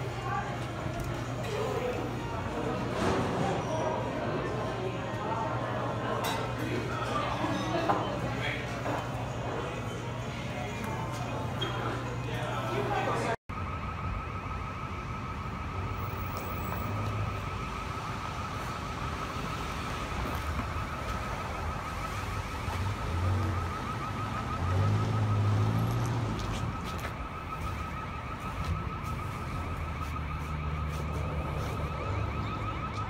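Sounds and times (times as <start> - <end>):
electronic alarm pulsing: 13.5 - 33.0.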